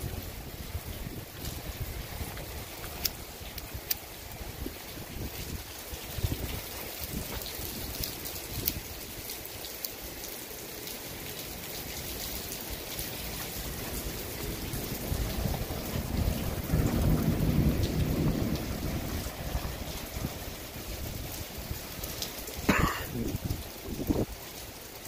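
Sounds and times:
steady rain: 0.0 - 25.0
thunder rolling: 14.6 - 21.4.

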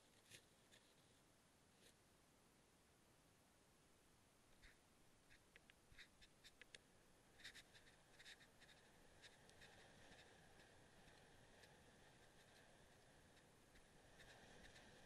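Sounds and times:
faint clicks and scratches: 0.0 - 2.0, 4.5 - 15.0
faint steady hiss: 0.0 - 15.0.

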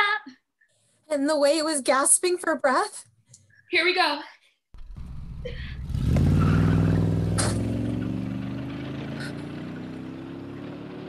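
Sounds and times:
van engine accelerating: 4.8 - 11.0.

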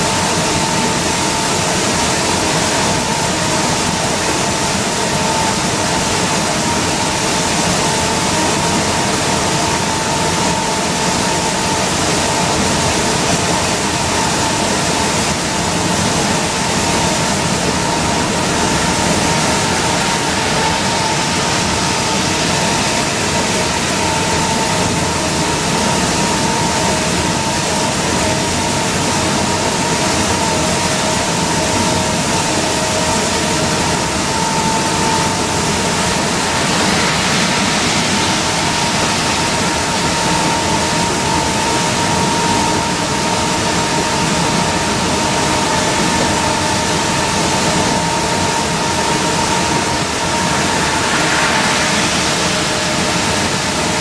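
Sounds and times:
bus drivetrain droning whine: 0.0 - 54.0
tyres hissing on wet road: 33.8 - 54.0.

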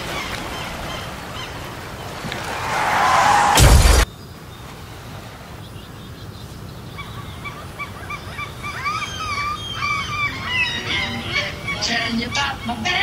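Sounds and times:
loud smash: 2.5 - 4.1.

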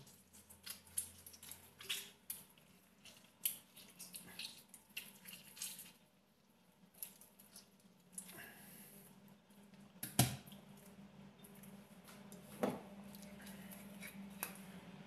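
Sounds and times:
juice dripping: 0.0 - 8.6.

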